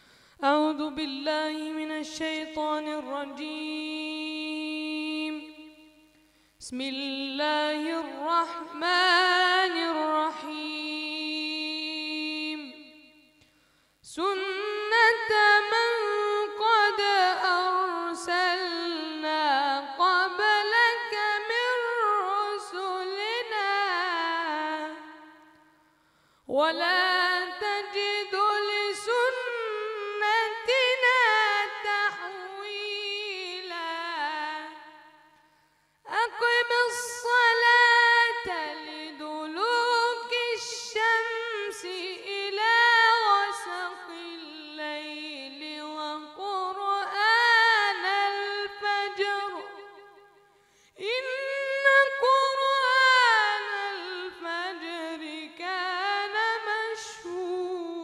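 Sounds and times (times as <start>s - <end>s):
boy reciting melodically: 0.4s - 6.0s, 6.6s - 13.1s, 14.1s - 25.4s, 26.6s - 35.1s, 36.1s - 50.0s, 51.0s - 58.0s.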